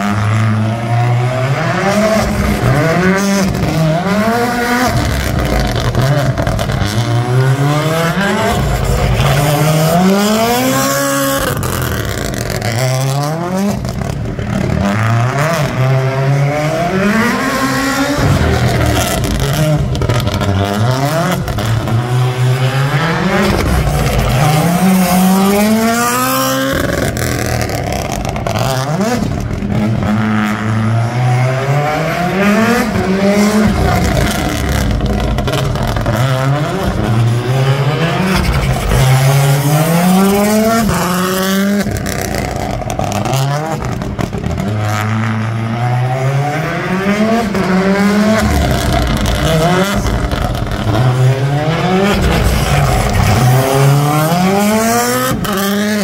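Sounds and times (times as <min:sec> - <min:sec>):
rally car engine revving: 0:00.0 - 0:56.0.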